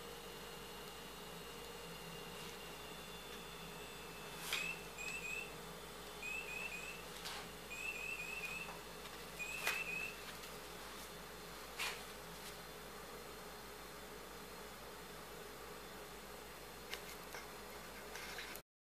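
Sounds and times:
electronic toy chirping: 4.6s - 5.5s, 6.2s - 7.0s, 7.7s - 8.8s, 9.4s - 10.2s.

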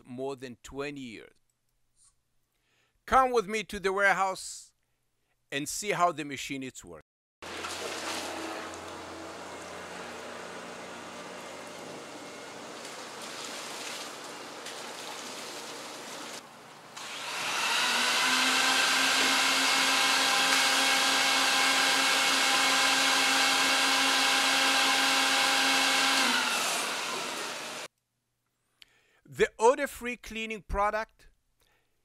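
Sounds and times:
water gushing from a hose: 7.4s - 9.8s, 12.3s - 16.4s
machine motor whining: 8.2s - 13.2s, 17.0s - 27.9s.

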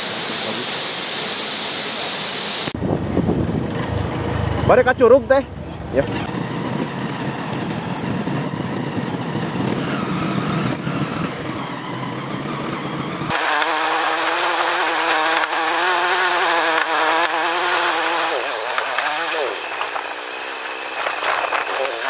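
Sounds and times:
motorcycle engine running: 2.8s - 13.4s.

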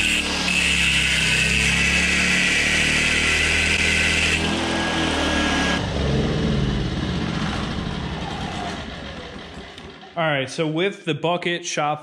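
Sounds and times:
angle grinder grinding steel: 0.0s - 10.2s
generator engine running: 3.4s - 10.2s.

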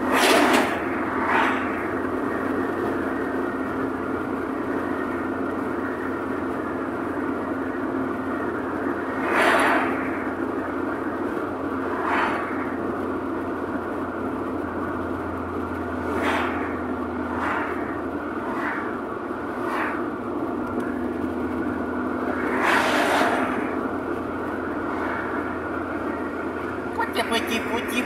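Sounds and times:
road and engine noise in car cabin: 0.0s - 28.0s
vehicles passing close by: 0.0s - 28.0s.

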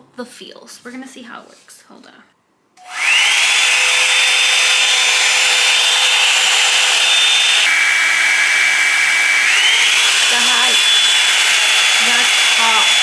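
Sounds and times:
hair dryer motor whining: 2.8s - 13.0s.

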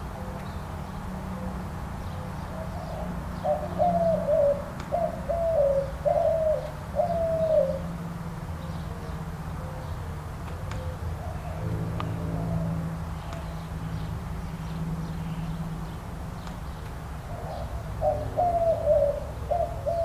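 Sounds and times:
dove cooing: 0.0s - 0.6s, 1.2s - 8.0s, 8.6s - 10.1s, 10.7s - 13.7s, 17.2s - 20.0s.

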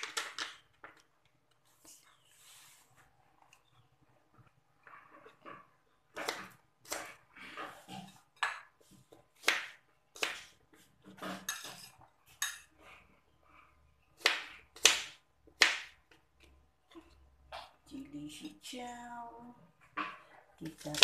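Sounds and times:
knife scraping: 11.1s - 12.8s.

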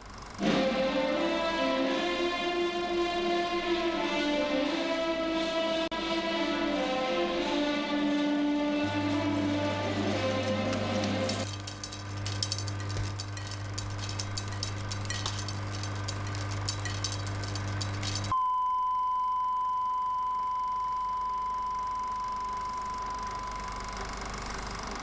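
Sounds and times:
crackle and clicks: 10.2s - 18.4s
high test tone beep: 18.3s - 23.8s.

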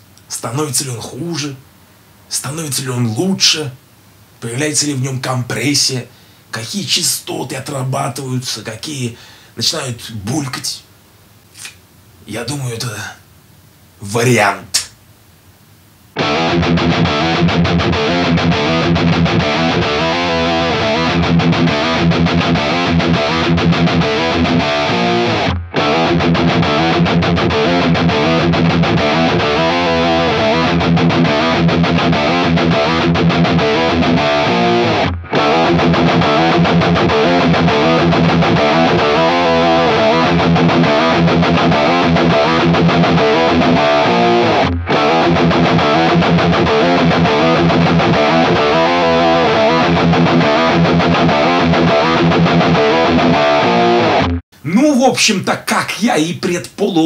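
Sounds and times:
overdriven electric guitar riff: 16.2s - 54.4s.

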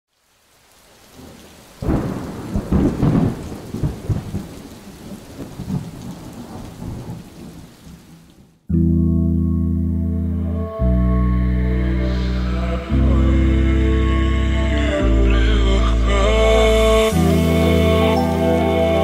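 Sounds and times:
rain falling: 0.1s - 8.7s, 14.9s - 19.0s
thunder clap rumbling: 1.2s - 8.5s.

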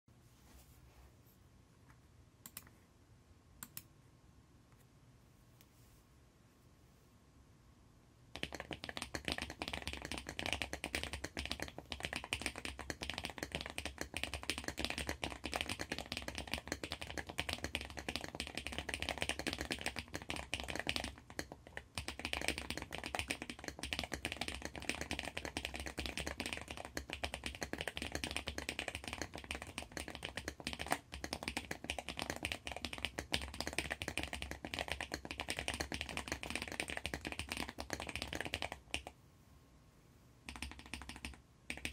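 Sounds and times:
fast typing on mechanical keyboard: 8.4s - 39.1s, 40.5s - 41.9s.

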